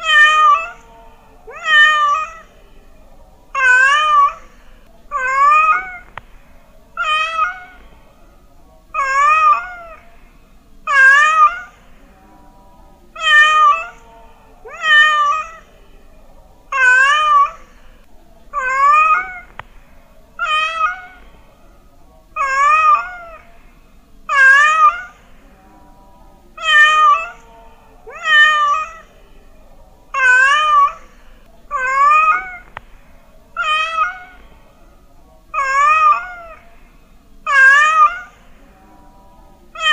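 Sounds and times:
cat meowing: 0:00.0 - 0:00.8, 0:01.5 - 0:02.6, 0:03.6 - 0:06.2, 0:07.0 - 0:07.8, 0:09.0 - 0:10.0, 0:10.9 - 0:11.8, 0:13.2 - 0:14.0, 0:14.7 - 0:15.7, 0:16.7 - 0:17.8, 0:18.6 - 0:19.7, 0:20.4 - 0:21.3, 0:22.4 - 0:23.5, 0:24.3 - 0:25.3, 0:26.6 - 0:27.5, 0:28.1 - 0:29.1, 0:30.1 - 0:32.8, 0:33.6 - 0:34.4, 0:35.5 - 0:36.6, 0:37.5 - 0:38.5.

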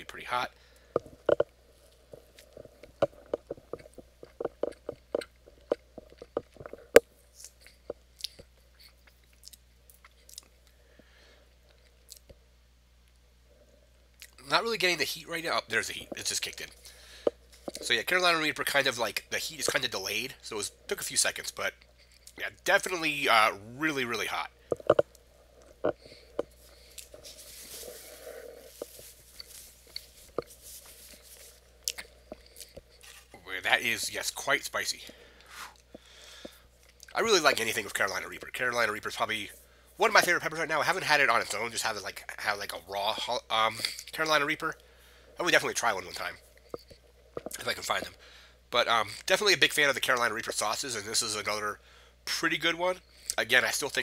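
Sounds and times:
quiet breathing: 0:00.0 - 0:09.1, 0:10.2 - 0:12.1, 0:15.4 - 0:18.0, 0:23.8 - 0:38.0, 0:39.3 - 0:40.1, 0:43.4 - 0:49.4, 0:51.8 - 0:52.3, 0:53.0 - 0:53.4
man chewing food: 0:00.7 - 0:12.4, 0:16.0 - 0:18.0, 0:21.8 - 0:22.4, 0:24.6 - 0:33.4, 0:35.0 - 0:38.0, 0:46.2 - 0:48.5
paper napkin rustling: 0:26.6 - 0:31.7
mouth sounds with sharp clicks: 0:46.2 - 0:48.2.

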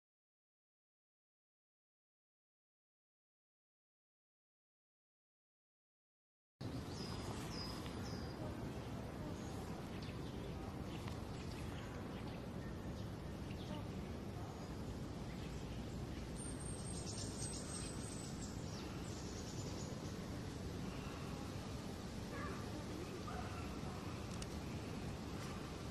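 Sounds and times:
outdoor ambient noise: 0:06.6 - 0:25.9
small birds chirping: 0:06.6 - 0:25.9.

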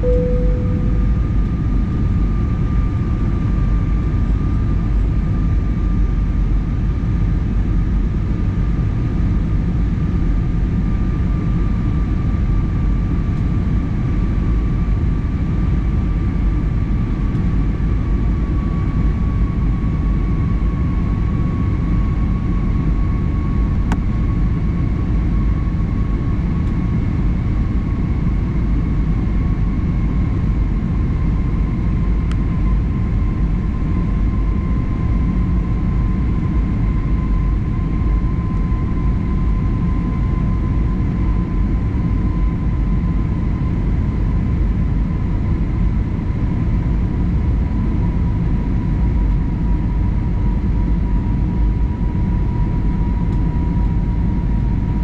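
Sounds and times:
engine whine: 0:00.0 - 0:06.4
jet engines and airflow rumble: 0:00.0 - 0:55.0.

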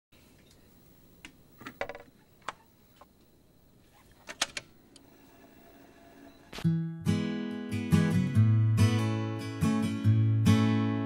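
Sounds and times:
record player clicks and knocks: 0:01.6 - 0:02.6.

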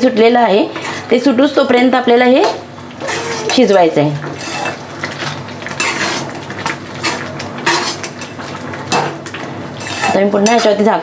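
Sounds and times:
ladle scraping metal pan: 0:04.3 - 0:04.8, 0:05.8 - 0:06.4, 0:09.8 - 0:10.8.

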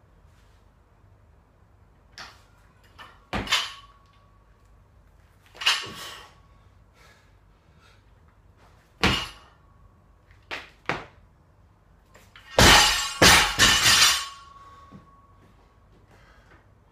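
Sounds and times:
metal clanking of bar and plates: 0:02.2 - 0:04.0, 0:05.5 - 0:06.2, 0:09.0 - 0:09.5, 0:12.4 - 0:14.7
barbell crashing onto floor: 0:03.3 - 0:03.9, 0:09.0 - 0:09.5, 0:12.5 - 0:14.5.

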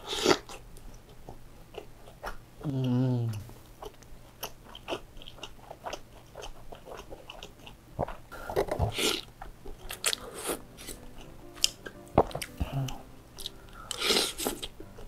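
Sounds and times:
slurping noodles: 0:00.0 - 0:00.6, 0:08.4 - 0:09.3, 0:13.9 - 0:14.7
wet chewing and smacking: 0:00.2 - 0:15.0.

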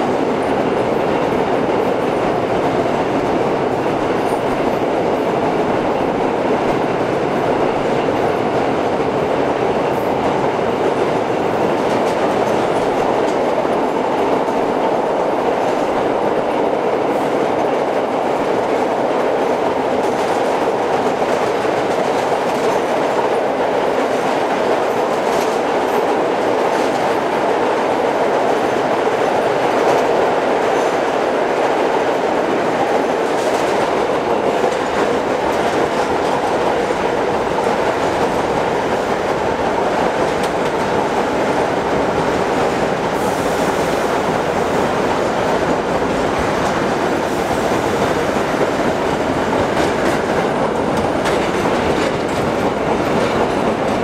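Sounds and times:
rumble of wheels on rail: 0:00.0 - 0:54.0
faint clicks at rail joints: 0:15.6 - 0:27.4, 0:32.8 - 0:44.3, 0:49.5 - 0:54.0.

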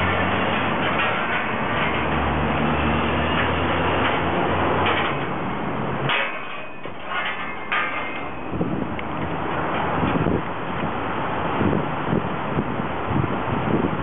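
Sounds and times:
sharp knocks and clatters: 0:00.0 - 0:10.2
street traffic: 0:00.0 - 0:14.0
vehicle engine rumble: 0:00.0 - 0:14.0.

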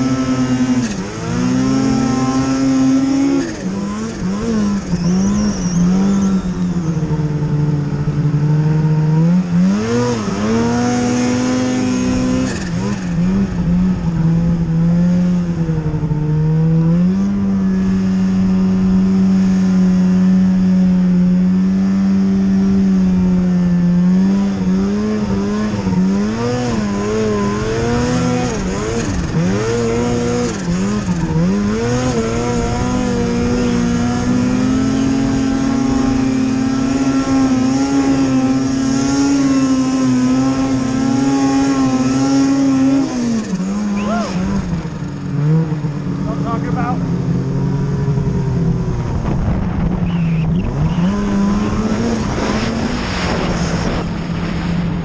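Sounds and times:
snowmobile engine revving hard: 0:00.0 - 0:55.0.

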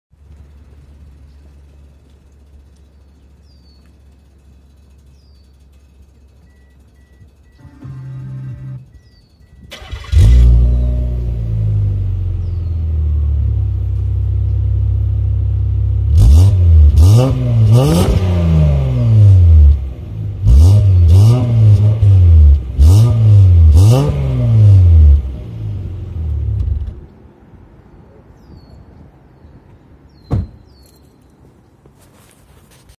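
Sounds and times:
low outdoor background rumble: 0:00.1 - 0:29.5
car engine idling: 0:00.2 - 0:16.1
bird chirping: 0:02.7 - 0:09.7, 0:12.4 - 0:12.9, 0:27.1 - 0:31.8
car engine revving: 0:07.6 - 0:08.9, 0:09.7 - 0:13.4, 0:15.9 - 0:26.7.

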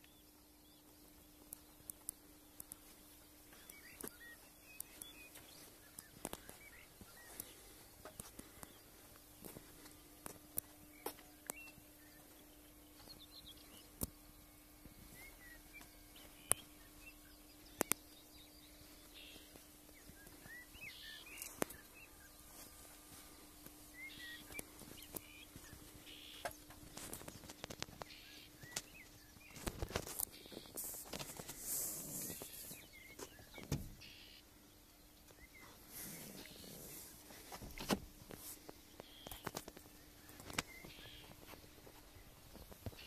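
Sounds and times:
faint birds chirping: 0:00.0 - 0:43.0
steady low hum: 0:00.0 - 0:43.0
sharp clicks: 0:17.8 - 0:18.0.

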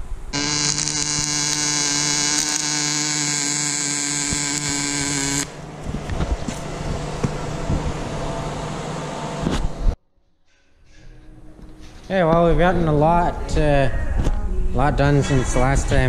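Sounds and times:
welding arc buzzing and crackling: 0:00.3 - 0:05.6.

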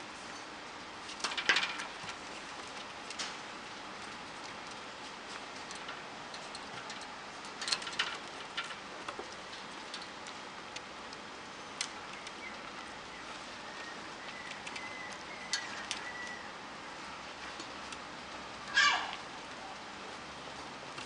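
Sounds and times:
puppy claws clicking on wire: 0:04.0 - 0:11.2, 0:14.2 - 0:16.4.

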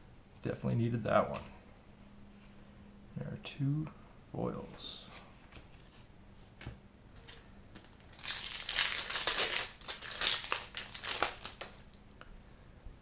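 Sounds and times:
foil wrapper crinkling: 0:07.8 - 0:11.8.

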